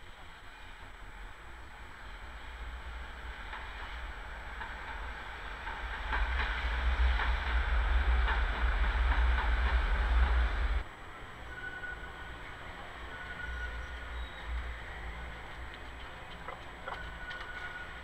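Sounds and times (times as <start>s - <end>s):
tram rumbling past: 0.0s - 18.0s
wheels clicking on rails: 2.6s - 10.8s, 13.0s - 18.0s.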